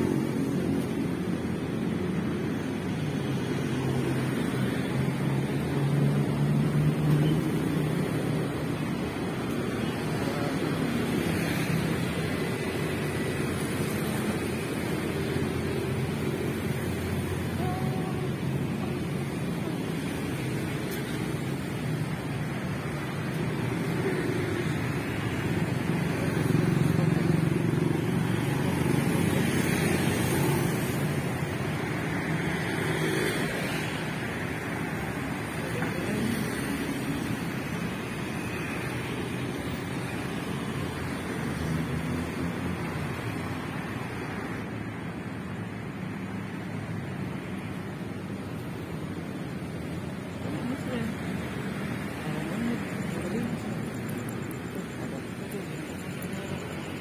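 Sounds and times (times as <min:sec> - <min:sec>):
road noise: 0:00.0 - 0:57.0
vehicle engine humming: 0:39.5 - 0:57.0.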